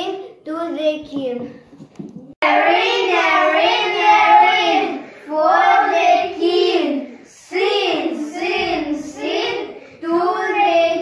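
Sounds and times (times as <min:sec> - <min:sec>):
children chanting: 0:02.4 - 0:11.0.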